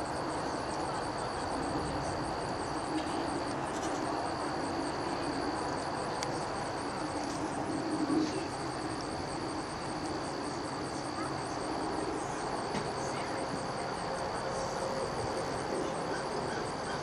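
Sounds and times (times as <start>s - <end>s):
cricket trill: 0.0s - 17.0s.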